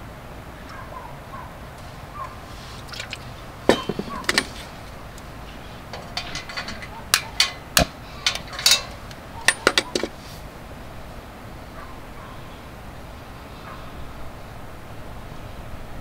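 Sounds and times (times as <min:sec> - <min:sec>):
metallic clicks and clinks: 0:03.0 - 0:10.1.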